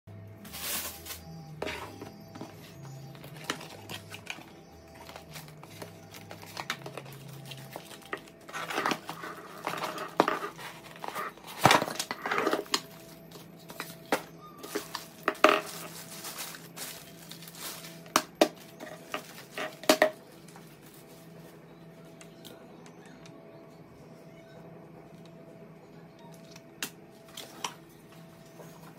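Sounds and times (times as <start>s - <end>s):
cardboard packaging rustling: 0.5s - 21.6s.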